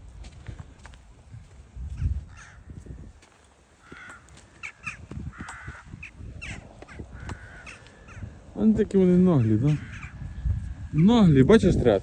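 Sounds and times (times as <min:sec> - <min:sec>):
crows cawing: 0:01.9 - 0:11.2.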